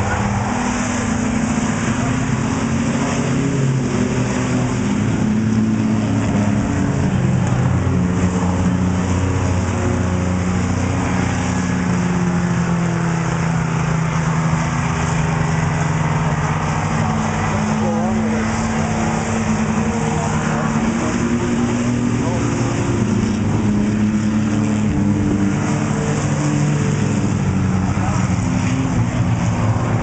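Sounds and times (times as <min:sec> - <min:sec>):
racing truck engines: 0:00.0 - 0:30.0.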